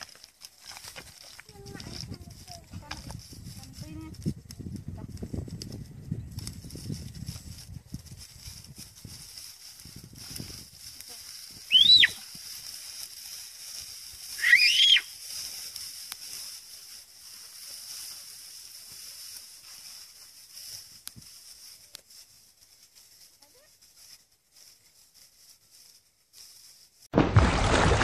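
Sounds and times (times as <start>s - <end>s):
loud rising and falling call: 11.7s - 12.2s, 14.4s - 15.1s
water splash effect: 27.2s - 28.0s.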